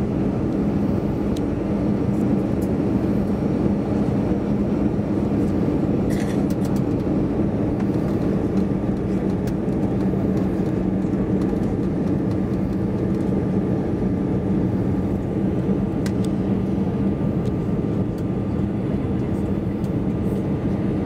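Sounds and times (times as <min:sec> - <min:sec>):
jet engines running: 0:00.0 - 0:21.0
low hum: 0:00.0 - 0:21.0.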